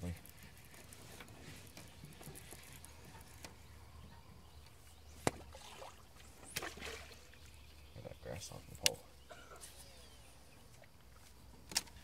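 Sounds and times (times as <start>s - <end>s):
fishing rod rustling: 0.0s - 3.8s.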